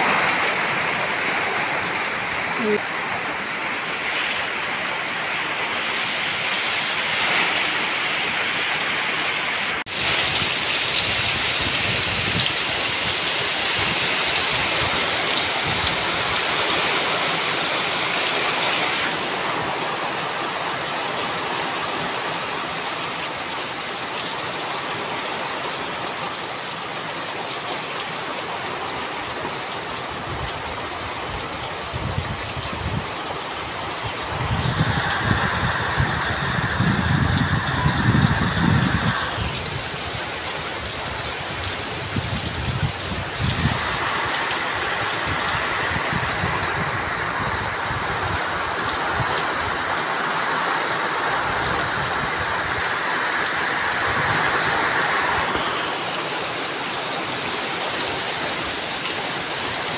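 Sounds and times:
heavy rain pouring: 0.0 - 59.9
wind gusts on microphone: 9.8 - 19.8, 30.1 - 59.9.

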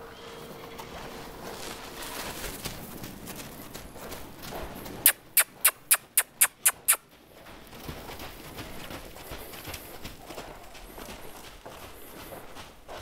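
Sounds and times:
sharp kissing noises: 5.0 - 7.0.

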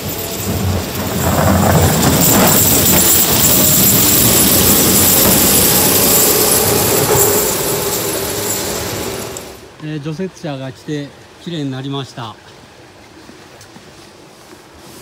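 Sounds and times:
blade pushing snow: 0.0 - 9.6
diesel engine under load: 0.0 - 9.8.

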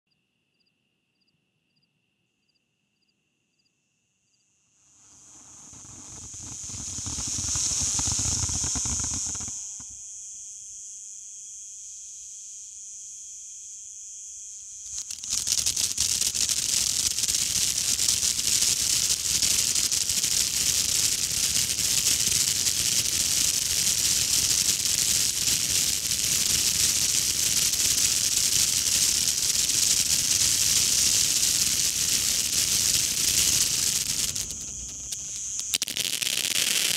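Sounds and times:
fine crackling of sparks: 4.8 - 10.1, 14.5 - 36.9
firework fountain hissing spray: 4.9 - 10.1, 14.7 - 36.9.

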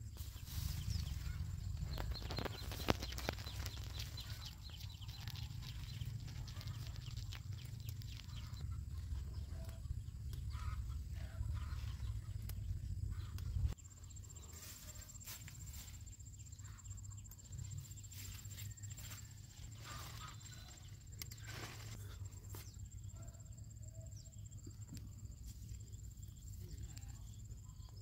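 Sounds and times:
leafy vines rustling: 0.2 - 9.3, 17.8 - 22.6
beans snapping: 1.8 - 8.6.

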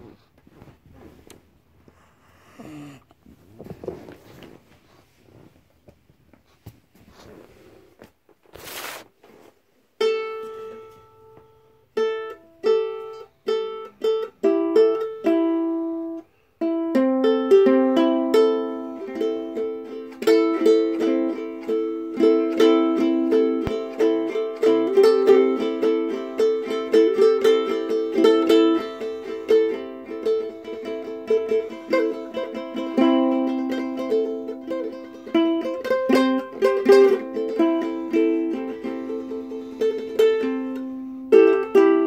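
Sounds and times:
brief rustle: 3.3 - 9.6
ukulele playing: 10.0 - 42.0.

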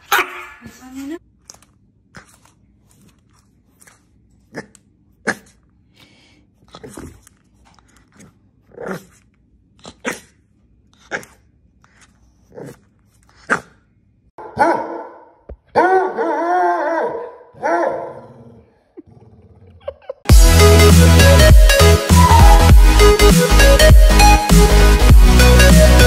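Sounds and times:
puppy barking: 14.4 - 18.3.

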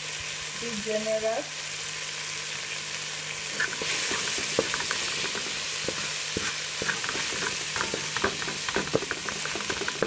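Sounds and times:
vegetables sizzling in a pot: 0.0 - 10.0
spoon scraping a metal pot: 3.6 - 10.0.

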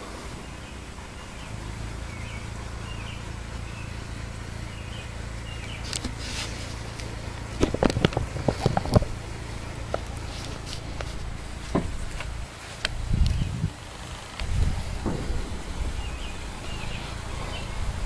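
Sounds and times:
faint bird chirps: 0.0 - 6.9, 15.5 - 18.0
low outdoor hum: 0.0 - 18.0.

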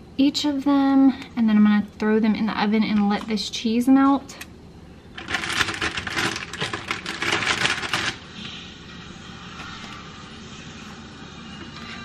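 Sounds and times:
low background hum: 0.0 - 12.0
crinkly wrapping rustling: 5.1 - 8.5.

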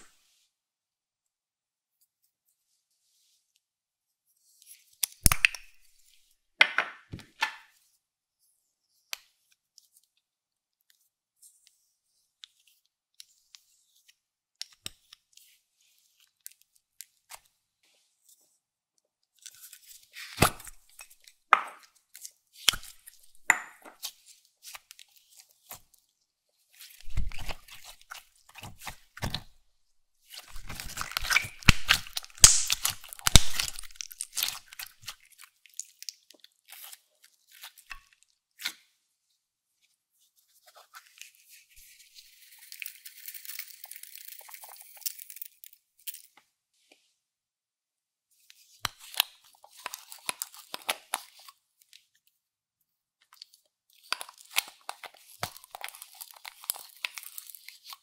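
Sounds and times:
slime crunching and crackling: 30.3 - 37.9, 53.4 - 58.0.

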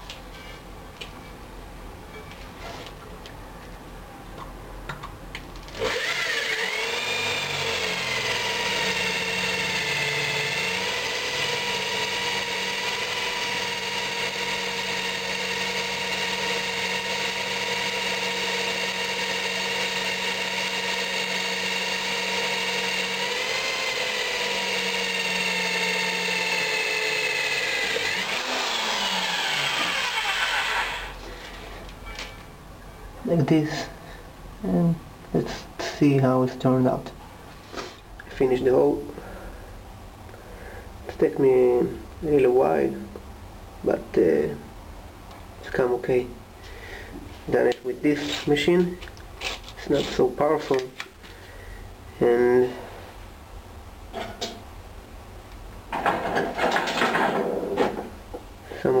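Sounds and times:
electric drill whining: 5.7 - 31.2.

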